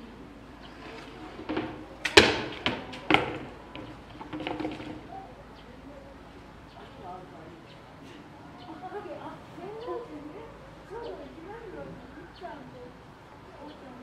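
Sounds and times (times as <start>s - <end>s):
plastic pipe knocking on rock: 1.0s - 5.1s.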